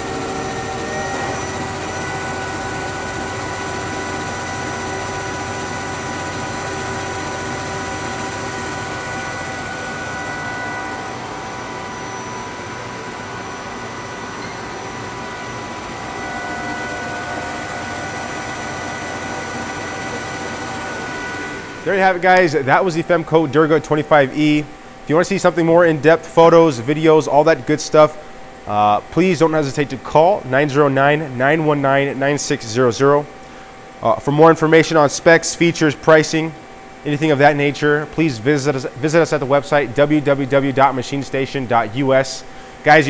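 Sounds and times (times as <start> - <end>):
lathe spindle whirring: 0.0 - 22.5.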